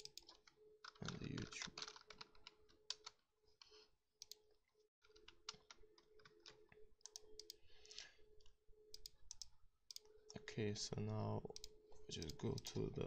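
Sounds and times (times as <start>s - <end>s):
keyboard typing clicks: 0.0s - 3.2s, 5.1s - 7.6s, 8.9s - 10.1s.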